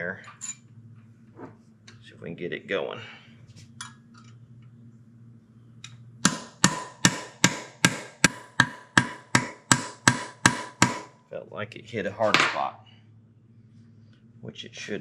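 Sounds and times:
hammer striking metal punch: 6.2 - 11.1.

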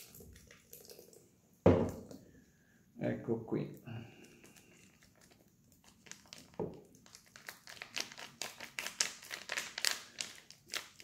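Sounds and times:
plastic sachet crinkling: 4.2 - 11.0.

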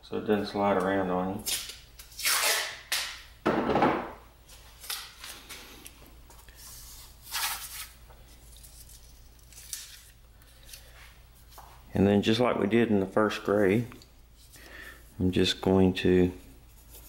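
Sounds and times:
masking tape pulled and torn: 1.4 - 3.2, 7.2 - 10.8.

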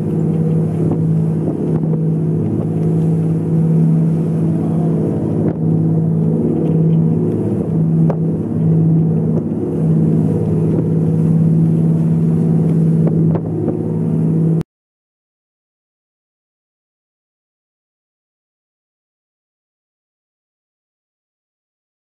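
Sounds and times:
boat engine droning: 0.0 - 14.6.

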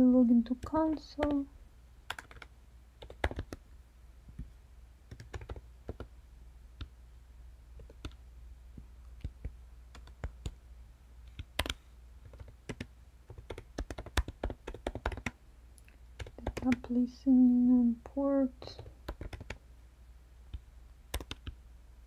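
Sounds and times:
faint low hum: 0.0 - 22.0
computer keyboard typing: 0.5 - 1.5, 2.1 - 3.6, 5.1 - 6.1, 7.8 - 8.2, 9.2 - 10.6, 11.4 - 15.4, 16.2 - 16.9, 18.8 - 19.6, 21.1 - 21.6.

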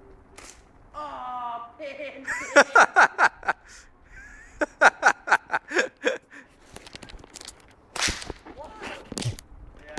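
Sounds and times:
person laughing: 2.2 - 6.4.

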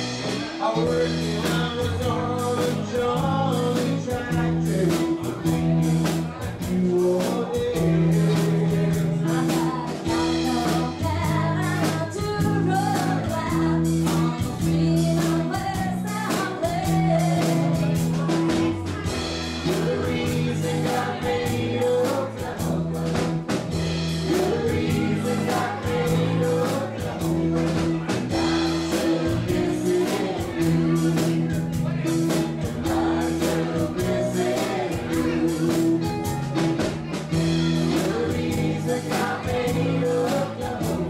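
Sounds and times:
country-rock band playing: 0.0 - 41.0
woman singing: 7.0 - 18.8, 24.3 - 27.2.

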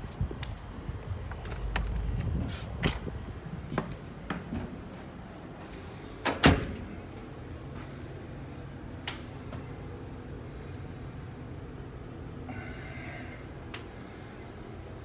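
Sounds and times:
heavy door thump: 6.2 - 6.9.

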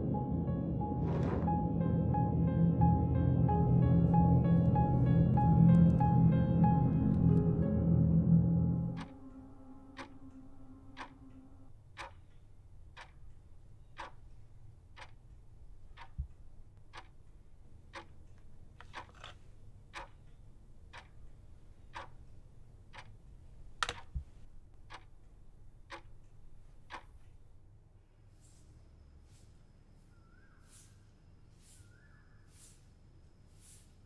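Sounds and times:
alarm clock ticking: 8.9 - 19.3, 19.9 - 23.2, 24.8 - 25.1, 25.8 - 27.2.

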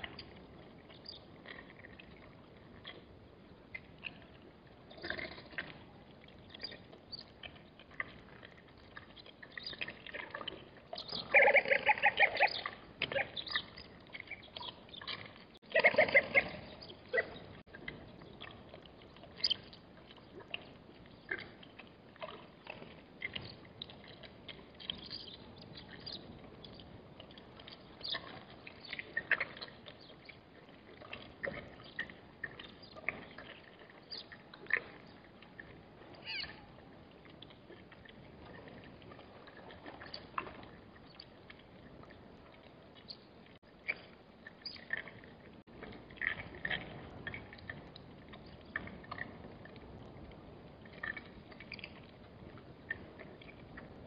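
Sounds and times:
high animal squeaks and chirps: 11.0 - 13.7, 36.2 - 36.7.

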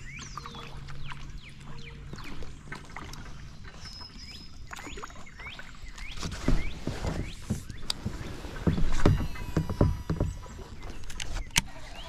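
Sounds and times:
birds chirping: 0.0 - 12.0
paddle swishing through water: 0.0 - 12.0
paddle knocking on plastic kayak: 6.1 - 11.0.

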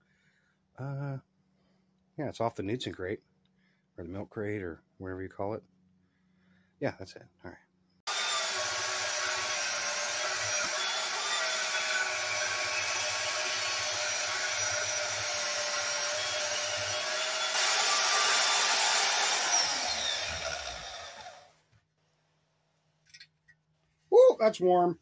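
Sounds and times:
band saw cutting steel: 8.1 - 21.6.

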